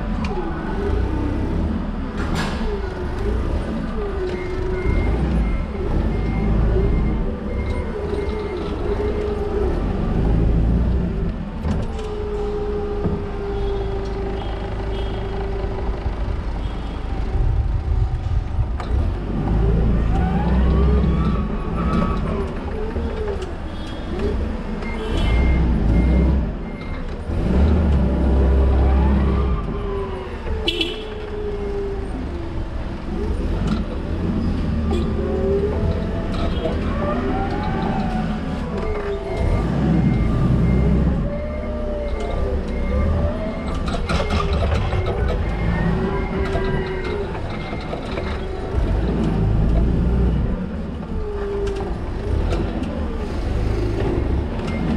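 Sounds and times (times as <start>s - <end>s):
forklift whine and rumble: 0.0s - 54.9s
forklift short beeps: 24.9s - 27.0s.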